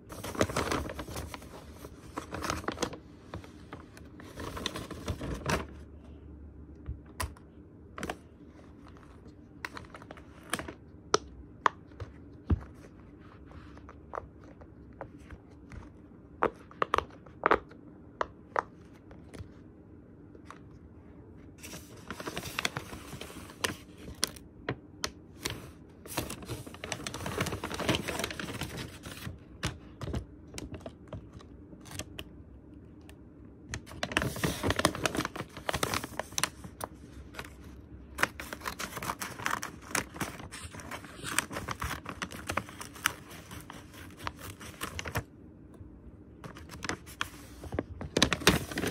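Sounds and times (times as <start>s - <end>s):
paper rustling and crinkling: 0.0s - 5.8s, 8.0s - 10.8s, 21.6s - 24.4s, 25.3s - 32.1s, 33.7s - 45.3s, 46.4s - 48.9s.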